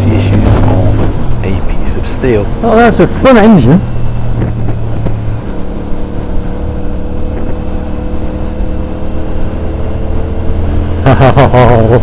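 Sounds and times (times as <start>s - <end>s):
motorcycle engine running: 3.8s - 11.6s.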